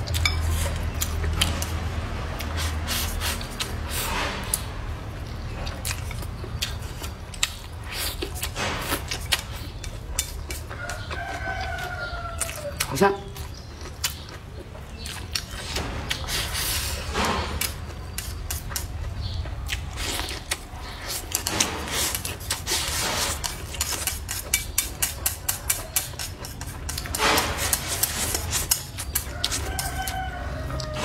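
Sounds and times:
wet chewing: 0:00.0 - 0:04.7, 0:05.3 - 0:31.0
chopsticks scraping a ceramic bowl: 0:07.9 - 0:11.9, 0:20.0 - 0:31.0.

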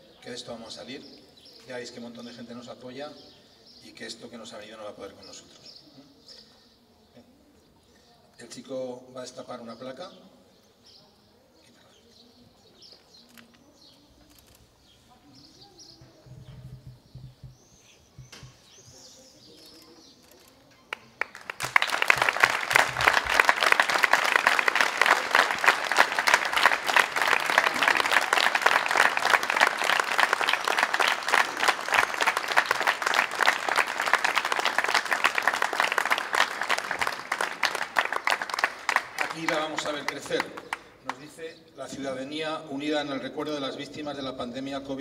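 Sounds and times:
crowd applauding: 0:20.9 - 0:41.2.

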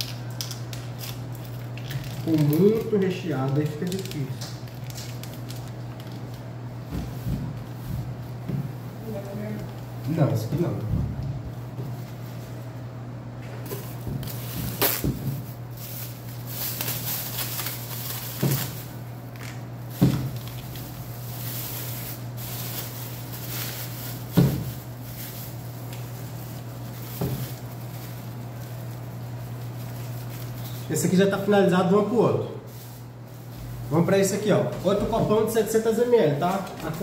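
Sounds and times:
plastic bag crinkling: 0:00.0 - 0:06.8, 0:13.8 - 0:30.9
steady low hum: 0:00.0 - 0:37.0.

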